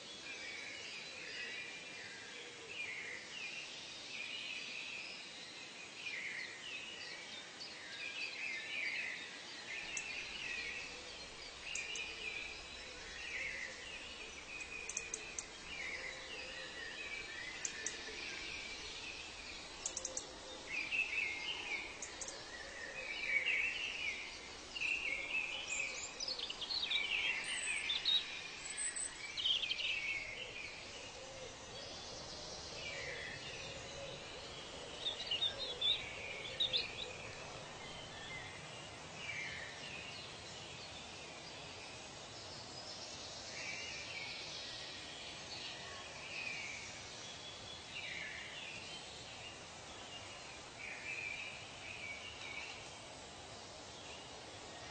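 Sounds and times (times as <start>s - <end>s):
faint steady hiss: 0.0s - 54.9s
birds chirping and calling: 9.8s - 38.1s.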